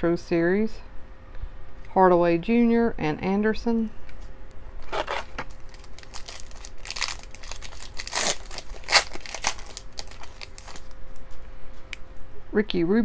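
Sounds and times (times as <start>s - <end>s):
foil wrapper crinkling: 4.8s - 11.3s.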